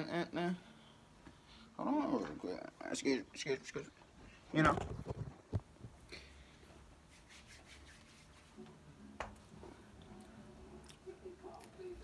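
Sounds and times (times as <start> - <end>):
low room hum: 0.0 - 12.0
faint rubbing and scratching: 4.2 - 6.0, 7.0 - 8.8.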